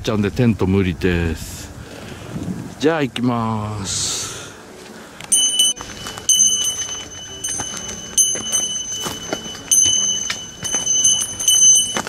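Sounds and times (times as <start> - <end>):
footsteps on leafy dirt trail: 4.6 - 12.0
bell jingling: 5.3 - 12.0.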